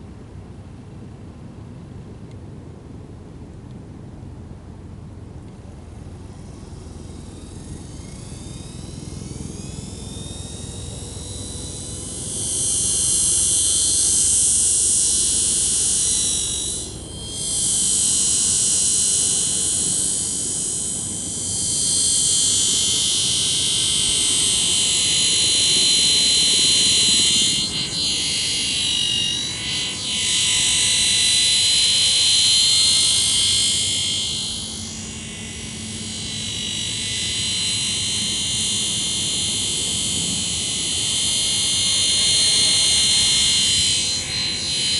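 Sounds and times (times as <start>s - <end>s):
model helicopter whine: 5.6s - 44.9s.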